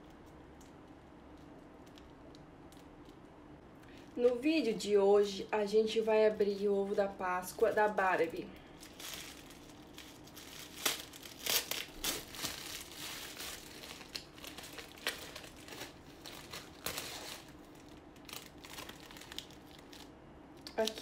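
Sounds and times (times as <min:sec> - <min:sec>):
foil wrapper crinkling: 0:00.0 - 0:04.4, 0:06.4 - 0:21.0.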